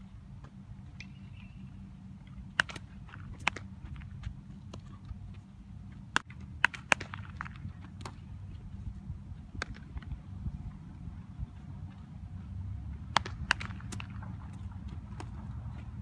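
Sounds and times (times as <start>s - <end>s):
bat hitting baseball: 13.1s - 14.4s.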